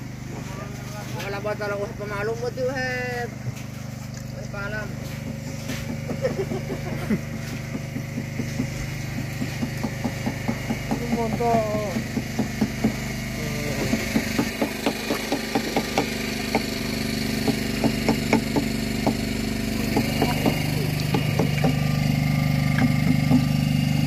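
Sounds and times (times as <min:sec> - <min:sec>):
boat engine running: 0:00.0 - 0:24.0
sharp irregular knocks: 0:07.6 - 0:13.1, 0:13.8 - 0:16.7, 0:19.9 - 0:21.8.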